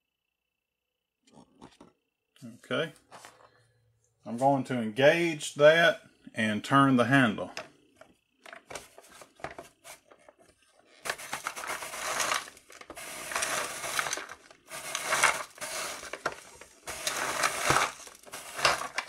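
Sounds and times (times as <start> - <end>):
toy scraping frozen ice cream: 9.8 - 19.0.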